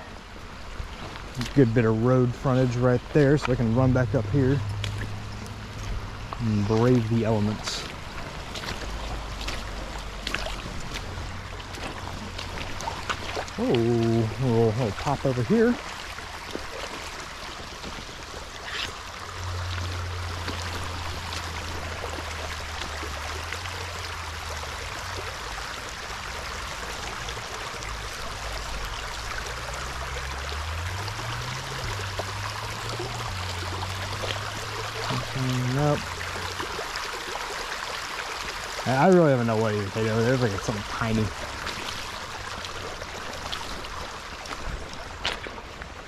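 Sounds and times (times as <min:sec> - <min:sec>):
creek water rushing: 0:00.0 - 0:46.0
low wavering hum: 0:01.8 - 0:37.2.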